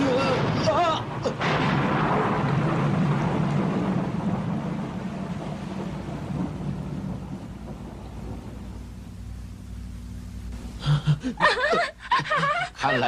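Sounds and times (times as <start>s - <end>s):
thunder rumbling: 0.0s - 10.5s
heavy rain: 0.0s - 12.7s.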